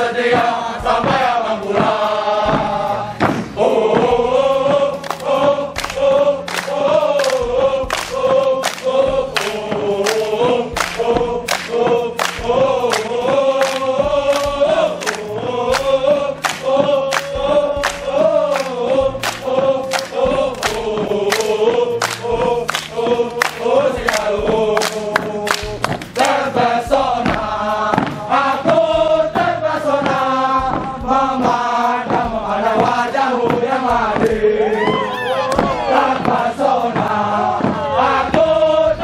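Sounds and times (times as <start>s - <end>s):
group singing in unison: 0.0s - 39.0s
sharp hand claps: 5.0s - 26.4s.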